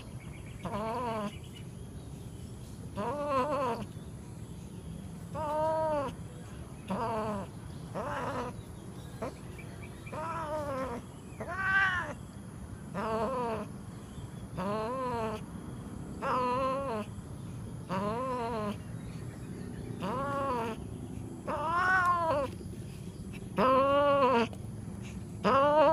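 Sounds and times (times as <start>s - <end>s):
cat yowling: 0.6s - 1.3s, 3.0s - 3.9s, 5.3s - 6.2s, 6.9s - 8.6s, 10.1s - 12.2s, 12.9s - 13.7s, 14.6s - 15.4s, 16.2s - 17.1s, 17.9s - 18.8s, 20.0s - 20.8s, 21.4s - 22.6s, 23.6s - 24.6s, 25.4s - 25.9s.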